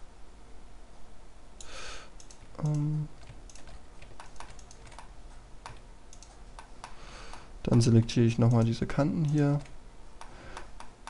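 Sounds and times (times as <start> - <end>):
mouse clicks: 1.6 - 7.5, 8.5 - 11.0
computer keyboard taps: 3.2 - 7.4.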